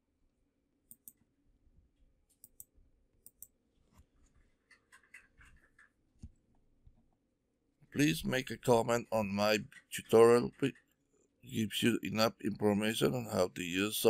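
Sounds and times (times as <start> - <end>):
computer mouse clicks: 0.9 - 1.2, 2.3 - 3.6, 4.6 - 6.4.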